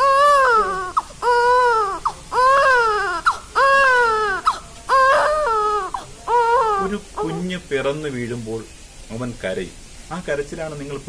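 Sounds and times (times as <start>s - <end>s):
newborn baby crying: 0.0s - 7.7s.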